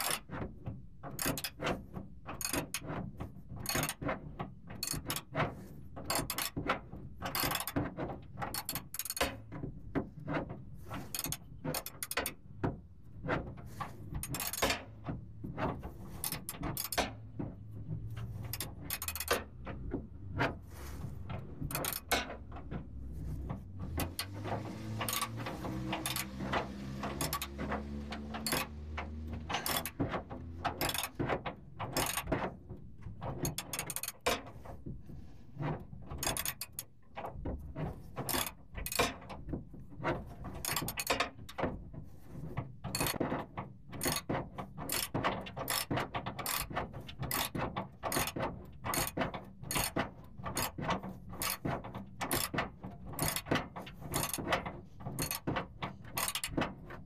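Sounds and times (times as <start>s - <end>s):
ratchet wrench clicking: 25.1s - 26.3s, 28.4s - 28.7s, 29.5s - 30.0s.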